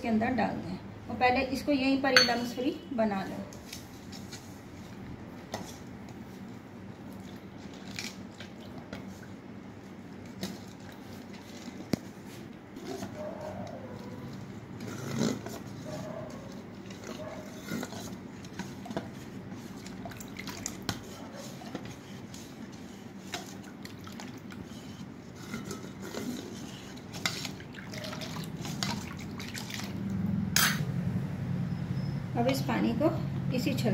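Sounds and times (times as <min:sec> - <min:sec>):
batter sloshing: 0:03.7 - 0:30.1.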